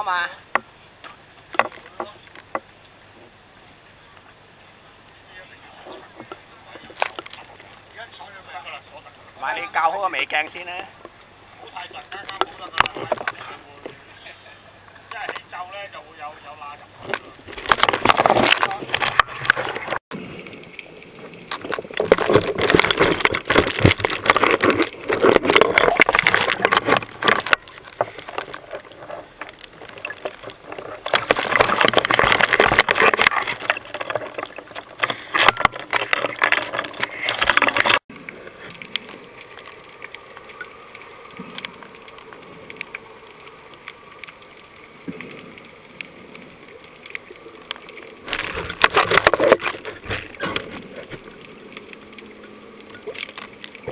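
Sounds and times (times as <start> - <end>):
sea water splashing: 0.0 - 53.9.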